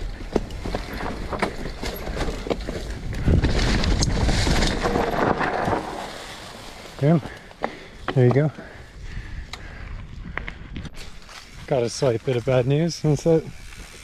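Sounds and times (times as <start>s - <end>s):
bike rattling over bumps: 0.0s - 10.2s, 10.9s - 14.0s
tyres crackling over leaves: 0.4s - 8.3s, 11.0s - 14.0s.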